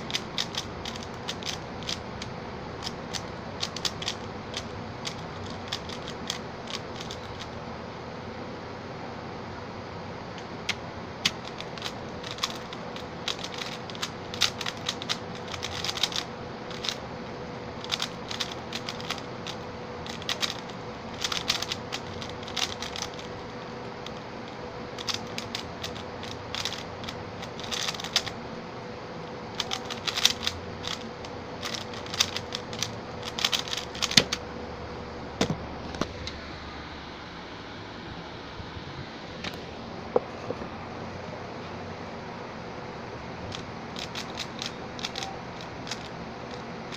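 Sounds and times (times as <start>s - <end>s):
puzzle cube layers clacking: 0.0s - 7.5s, 10.7s - 17.0s, 17.8s - 24.2s, 25.0s - 28.4s, 29.6s - 34.4s, 43.5s - 46.6s
faint steady hum: 0.0s - 46.9s.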